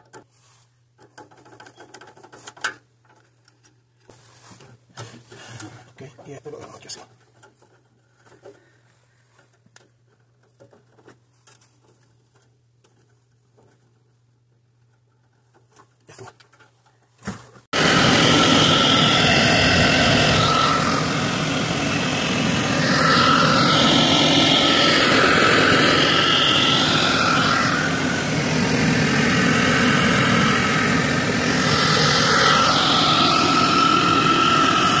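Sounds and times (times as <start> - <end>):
gas burners rushing: 17.8 - 35.0.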